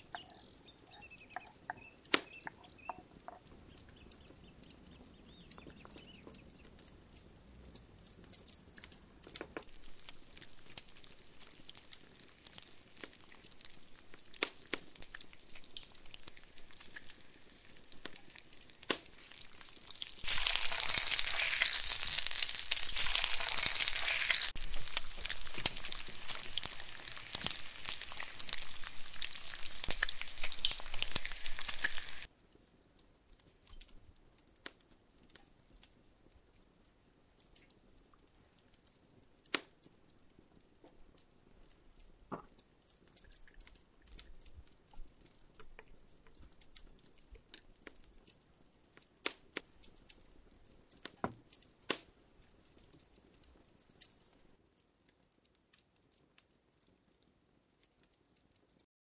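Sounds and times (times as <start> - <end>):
vegetables sizzling in a pan: 9.7 - 32.3.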